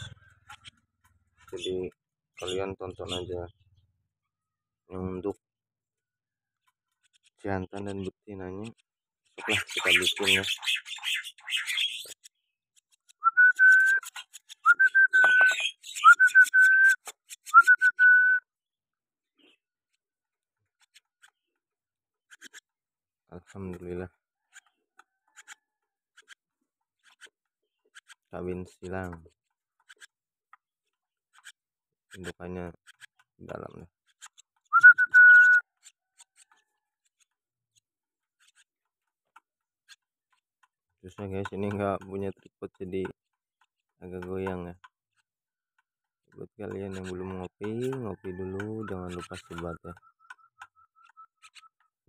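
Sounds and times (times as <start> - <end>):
person whistling: 13.2 - 14.0, 14.7 - 18.4, 34.7 - 35.6.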